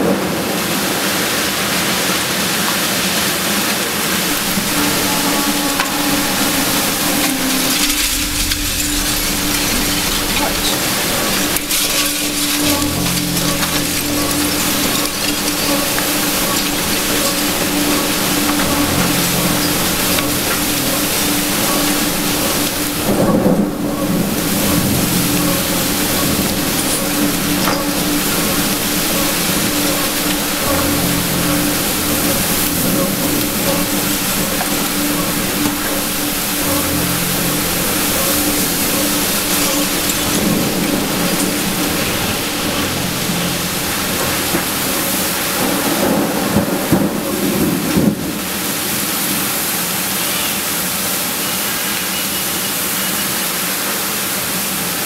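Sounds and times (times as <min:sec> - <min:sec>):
heavy rain and storm wind: 0:00.0 - 0:55.0
low hum: 0:04.2 - 0:47.4
deeper hum: 0:04.2 - 0:47.5.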